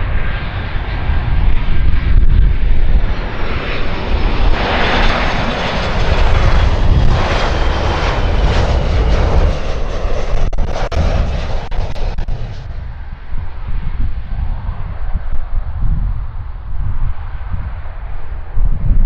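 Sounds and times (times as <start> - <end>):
jet roar overhead: 0.0 - 19.0.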